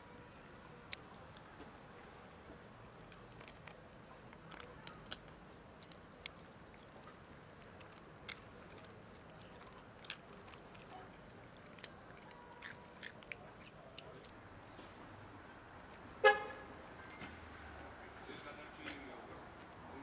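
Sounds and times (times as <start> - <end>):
cats crunching dry kibble: 0.9 - 15.0.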